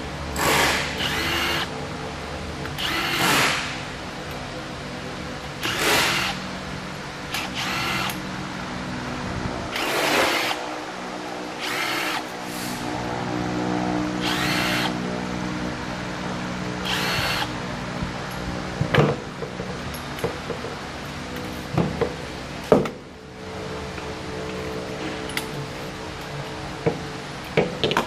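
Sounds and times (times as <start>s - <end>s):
cordless drill whirring: 0.5s - 1.7s, 2.8s - 3.6s, 5.6s - 6.4s, 7.3s - 8.2s, 9.7s - 10.6s, 11.6s - 12.3s, 14.2s - 15.0s, 16.8s - 17.5s.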